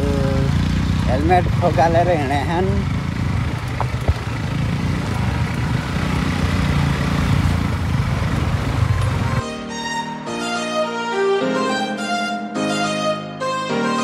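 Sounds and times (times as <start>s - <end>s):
motorcycle engine running: 0.0s - 9.4s
music: 9.4s - 14.0s.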